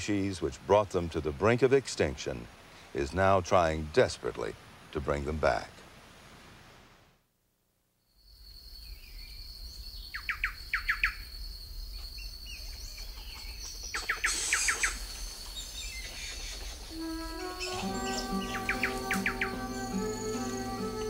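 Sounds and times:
birds calling: 8.3s - 21.0s
quick bird chirps: 10.0s - 20.1s.

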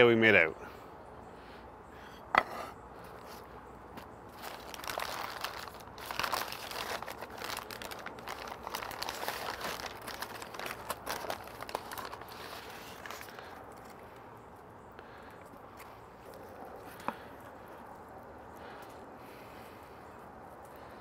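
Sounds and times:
paper crinkling and rustling: 4.4s - 14.0s.

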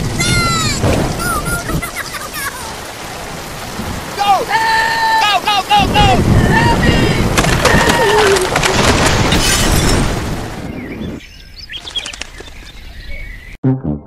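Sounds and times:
heavy rain pouring: 0.0s - 11.2s
birds chirping: 0.0s - 13.6s
sharp cracks: 7.3s - 10.4s.

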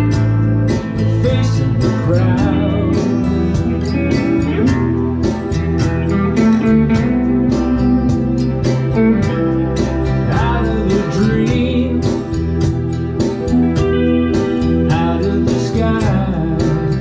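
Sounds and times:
acoustic guitar strumming: 0.0s - 17.0s
lead guitar bending notes: 0.0s - 17.0s.

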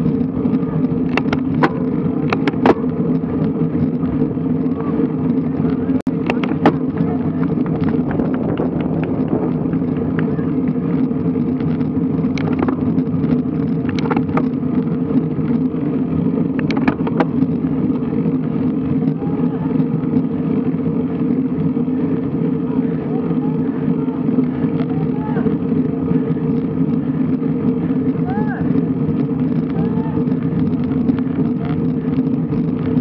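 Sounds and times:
sharp clicks and knocks: 0.0s - 4.2s, 5.4s - 15.7s, 16.4s - 18.0s
wind and road noise: 0.0s - 33.0s.

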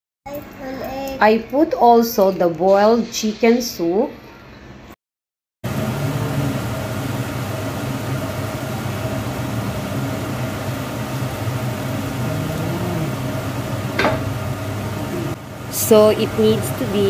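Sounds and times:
low mechanical hum: 5.7s - 17.0s.

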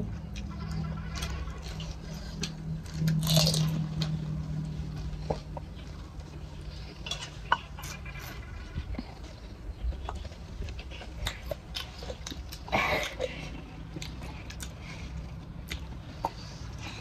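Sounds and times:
crunching crisp shells: 0.2s - 4.7s.

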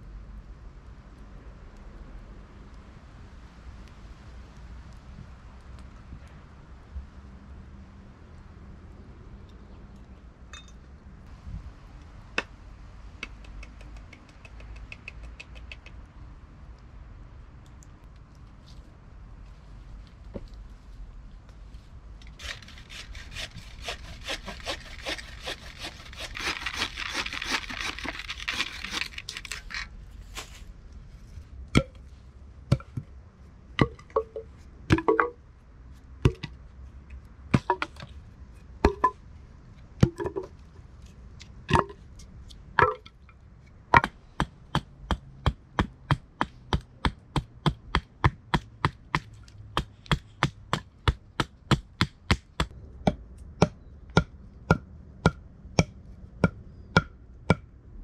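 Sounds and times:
hatchet chopping wood: 22.4s - 28.7s, 44.0s - 57.6s
bow saw cutting wood: 22.4s - 29.8s.

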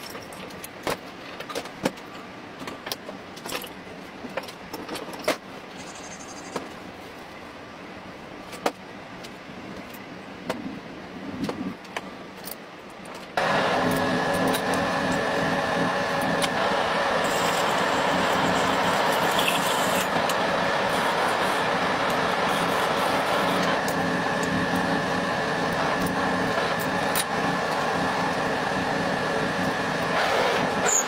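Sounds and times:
metal lathe running: 13.4s - 31.0s.

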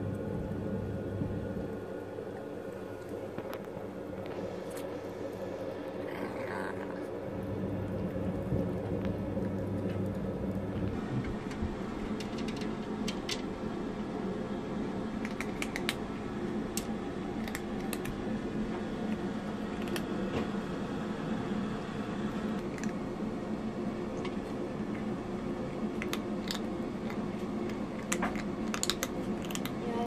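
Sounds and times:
low hum: 0.0s - 29.9s
cat crunching dry kibble: 15.2s - 16.1s, 16.7s - 20.2s, 22.6s - 23.0s, 24.2s - 30.0s.

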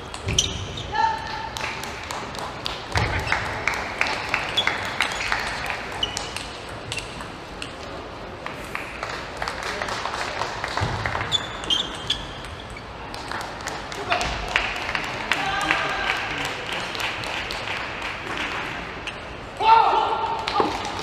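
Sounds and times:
shoes squeaking on floor: 0.0s - 1.1s, 4.5s - 7.2s, 11.2s - 13.0s.

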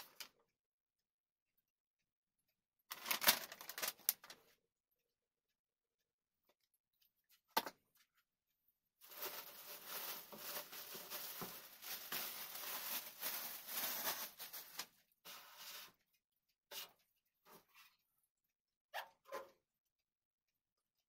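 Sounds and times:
packaging rustling and scraping: 2.9s - 4.4s, 9.0s - 14.9s.

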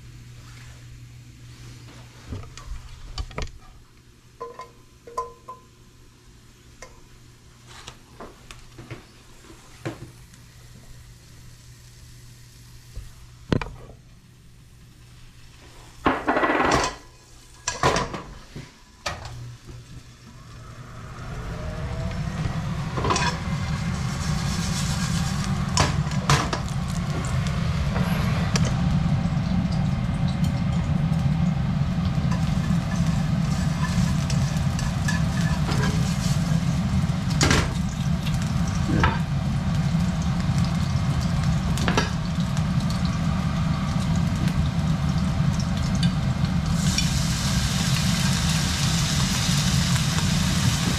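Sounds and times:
pans knocking: 4.4s - 5.7s
loud low hum: 19.1s - 50.9s
food sizzling in hot oil: 19.5s - 50.9s.

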